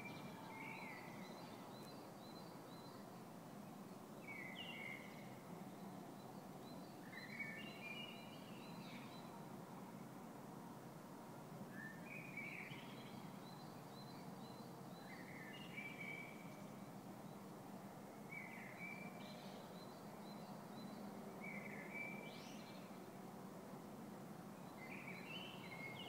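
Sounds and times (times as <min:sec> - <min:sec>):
songbird singing: 0:00.0 - 0:09.6, 0:11.7 - 0:17.6, 0:18.2 - 0:23.3, 0:24.6 - 0:26.0.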